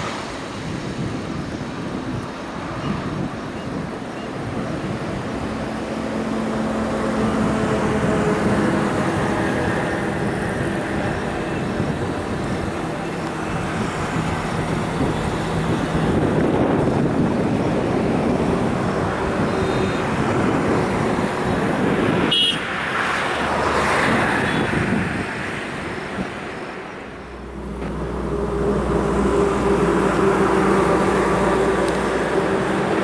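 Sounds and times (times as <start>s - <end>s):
road traffic passing: 0.0s - 33.0s
steady engine hum: 0.0s - 33.0s
car horn toot: 22.2s - 22.6s.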